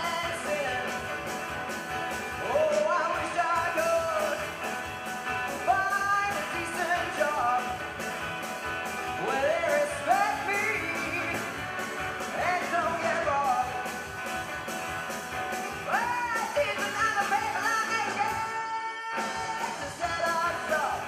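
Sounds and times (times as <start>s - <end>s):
person singing: 0.0s - 1.4s, 2.2s - 4.7s, 5.3s - 7.9s, 9.0s - 14.0s, 15.7s - 21.0s
folk-rock band playing: 0.0s - 21.0s.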